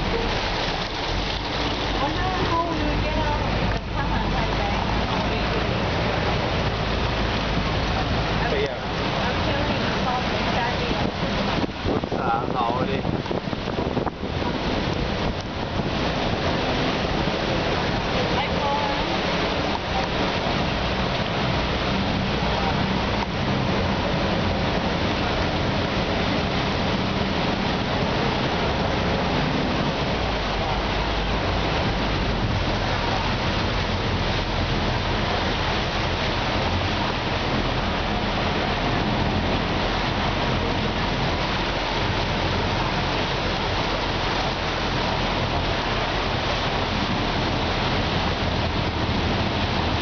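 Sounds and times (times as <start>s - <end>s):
floodwater rushing and splashing: 0.0s - 50.0s.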